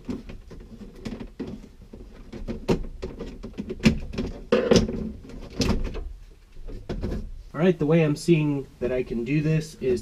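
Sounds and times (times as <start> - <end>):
plastic clicks and knocks: 0.0 - 6.0.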